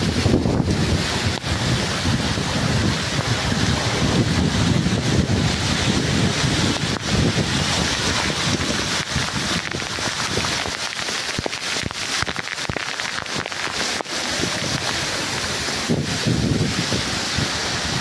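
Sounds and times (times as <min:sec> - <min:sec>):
waterfall rushing: 0:00.0 - 0:18.0
wind buffeting microphone: 0:00.0 - 0:18.0.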